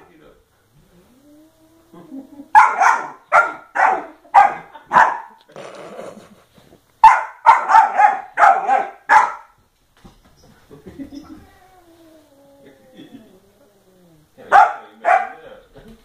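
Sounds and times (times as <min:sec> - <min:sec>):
puppy barking: 0:02.5 - 0:05.4, 0:07.0 - 0:09.6, 0:14.5 - 0:15.4.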